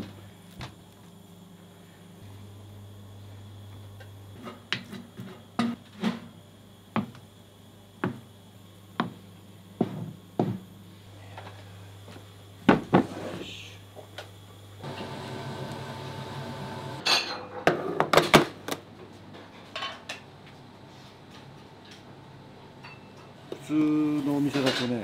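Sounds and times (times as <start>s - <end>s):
kitchen equipment humming: 0.0s - 17.5s.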